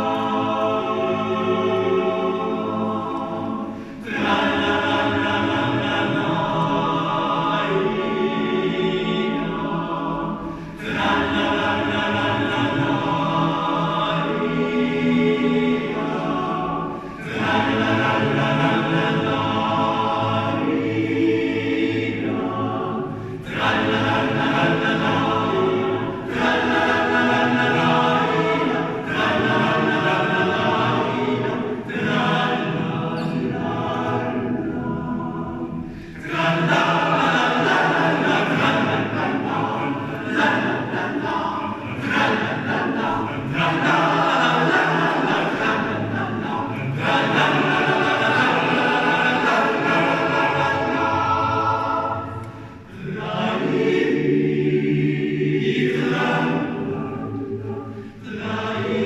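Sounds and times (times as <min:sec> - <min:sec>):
male choir singing a cappella: 0:00.0 - 0:59.0.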